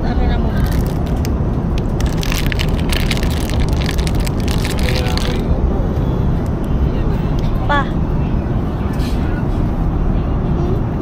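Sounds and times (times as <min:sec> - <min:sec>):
airliner cabin drone: 0:00.0 - 0:11.0
plastic wrapper crinkling: 0:00.6 - 0:05.4.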